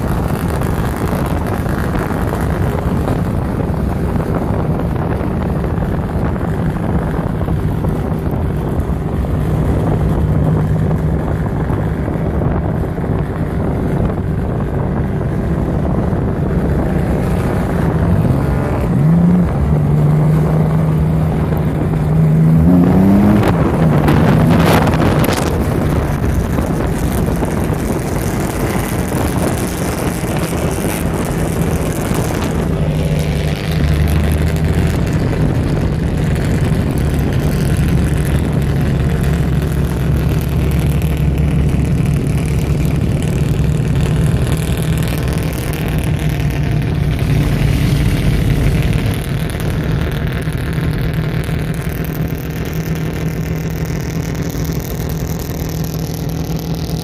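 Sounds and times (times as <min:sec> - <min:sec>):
deeper engine note: 0:00.0 - 0:57.0
sports car engine running: 0:00.0 - 0:57.0.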